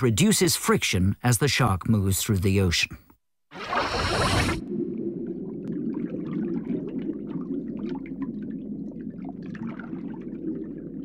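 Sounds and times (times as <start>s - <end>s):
muffled underwater rush: 3.5s - 11.0s
bubbling pops and gurgles: 3.6s - 11.0s.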